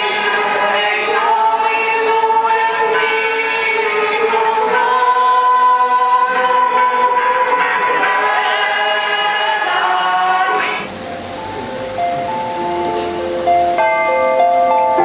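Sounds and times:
crowd singing a hymn: 0:00.0 - 0:11.0
quiet hiss: 0:00.0 - 0:15.0.

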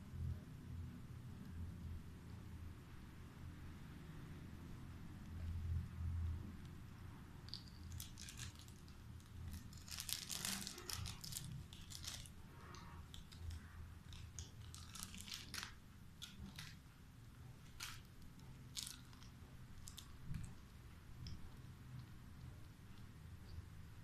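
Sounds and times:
foil wrapper crinkling: 0:07.5 - 0:12.4, 0:13.1 - 0:16.8, 0:17.6 - 0:20.1.

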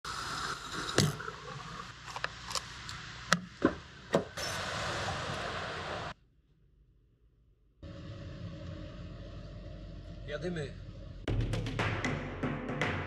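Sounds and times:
steady hiss: 0:00.1 - 0:06.2.

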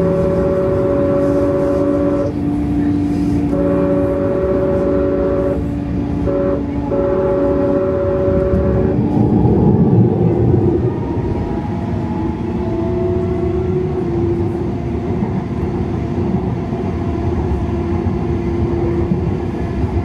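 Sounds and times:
train horn: 0:00.0 - 0:15.0
light rail car rumble: 0:00.0 - 0:20.0.

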